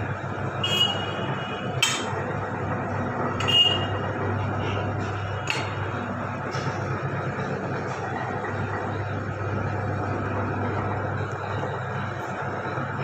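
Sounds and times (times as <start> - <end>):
bending machine humming: 0.0 - 13.0.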